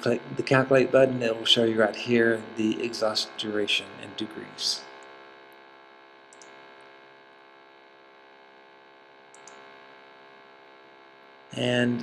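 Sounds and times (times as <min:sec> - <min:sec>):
low electrical hum: 0:00.0 - 0:12.0
faint clicks: 0:06.3 - 0:06.6, 0:09.3 - 0:09.6.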